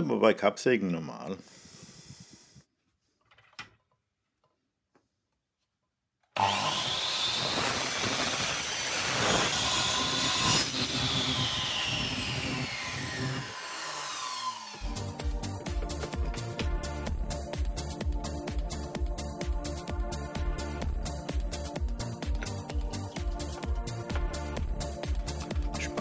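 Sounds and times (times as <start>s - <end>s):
dust extractor running: 6.4s - 15.0s
mitre saw cutting wood: 6.4s - 15.1s, 22.4s - 24.2s
background music: 14.7s - 26.0s.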